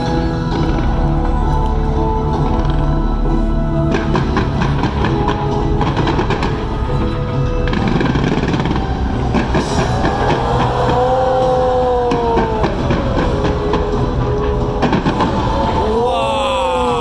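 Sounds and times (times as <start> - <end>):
fireworks bangs and crackles: 0.0 - 16.0
whistling fireworks: 3.8 - 16.0.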